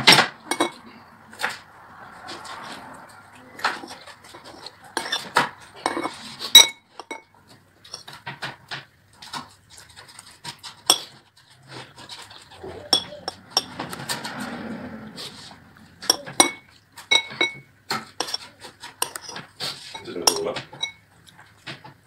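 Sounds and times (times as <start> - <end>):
metal spoon scraping ceramic plate: 0.0 - 0.8, 3.6 - 7.3, 10.8 - 11.2, 11.8 - 14.6, 15.2 - 21.0.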